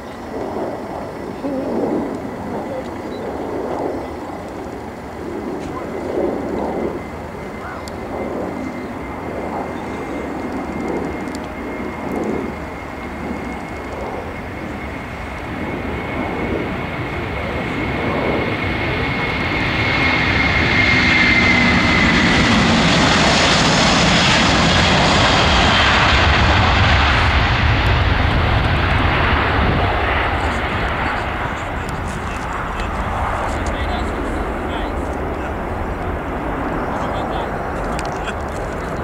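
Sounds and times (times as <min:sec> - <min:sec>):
jet engines roaring at takeoff: 0:00.0 - 0:39.0.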